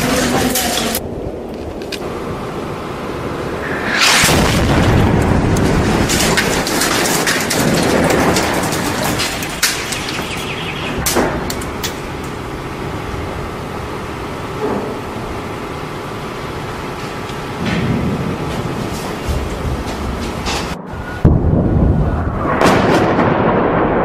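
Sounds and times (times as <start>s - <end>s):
constant noisy roar: 0.0s - 24.0s
sharp cracks: 3.6s - 12.8s
deep booming rumbles: 3.6s - 14.0s, 17.6s - 24.0s.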